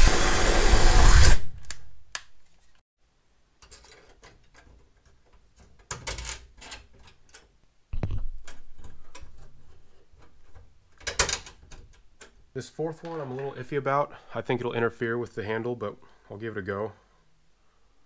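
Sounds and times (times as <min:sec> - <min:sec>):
cordless drill boring metal: 0:00.0 - 0:01.4.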